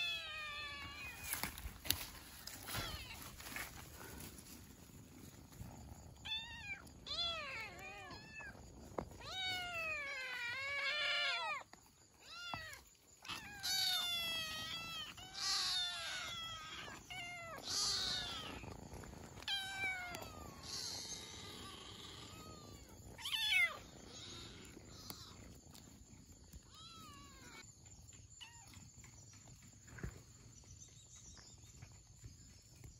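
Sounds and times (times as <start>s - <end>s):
kittens mewing: 6.2s - 27.6s.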